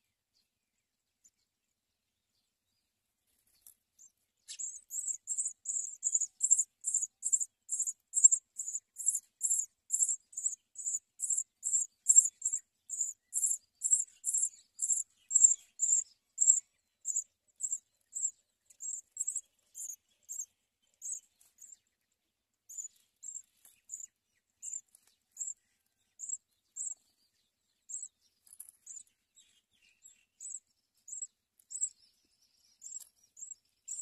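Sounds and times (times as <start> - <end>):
nestlings chirping begging calls: 4.0 - 21.8, 22.7 - 25.6, 26.2 - 27.0, 27.9 - 28.1, 28.8 - 29.1, 30.0 - 32.0, 32.7 - 34.0.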